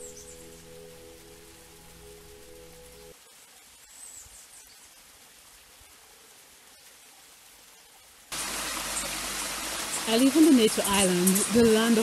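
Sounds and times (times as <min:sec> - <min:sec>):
hiss of running water: 0:00.0 - 0:12.0
small waterfall splashing into pool: 0:03.1 - 0:12.0.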